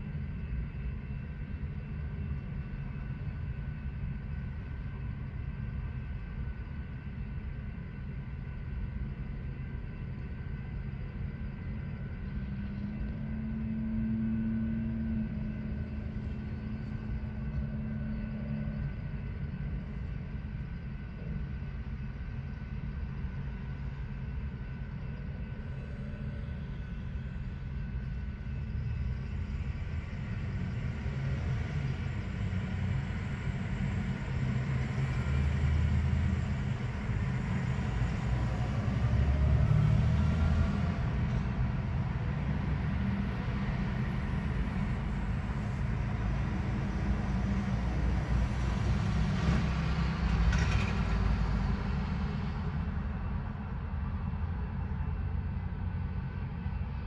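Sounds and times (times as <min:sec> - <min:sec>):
train wheels rumbling on rail: 0:28.8 - 0:57.0.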